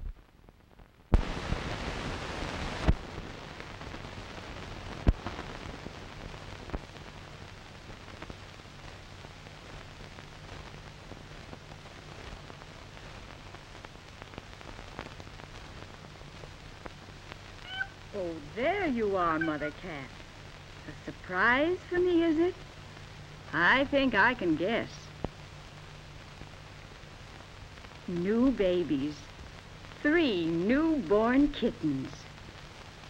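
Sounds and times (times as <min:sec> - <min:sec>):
faint low hum: 0:00.0 - 0:33.0
film soundtrack hiss: 0:00.0 - 0:33.0
sharp pops and clicks: 0:25.2 - 0:25.4.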